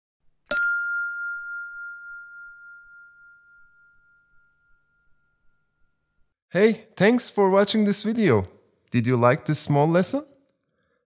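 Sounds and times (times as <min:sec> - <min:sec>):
bell-like ding: 0:00.5 - 0:06.2.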